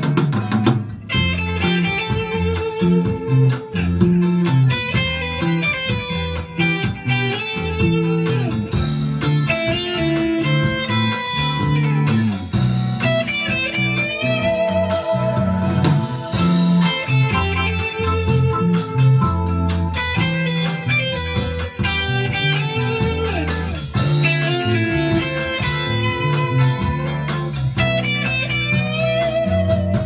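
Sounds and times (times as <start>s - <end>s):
bass line: 0.0s - 30.0s
drums: 0.0s - 30.0s
electric guitar lead melody: 0.0s - 30.0s.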